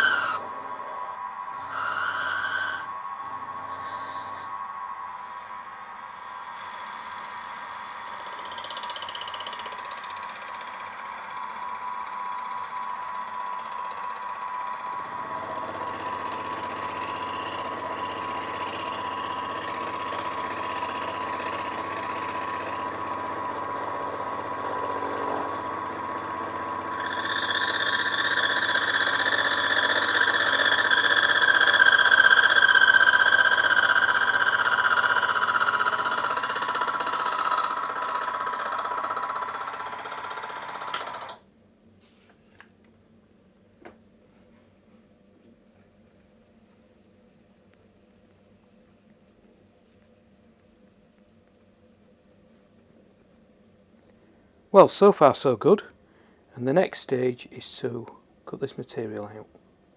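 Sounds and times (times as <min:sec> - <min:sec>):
squealing metal cutting tones: 0:00.0 - 0:41.3
milling machine motor whine: 0:00.0 - 0:41.4.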